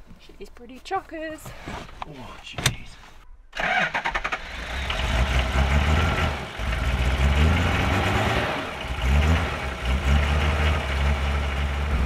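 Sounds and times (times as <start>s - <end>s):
diesel engine idling: 4.5s - 12.0s.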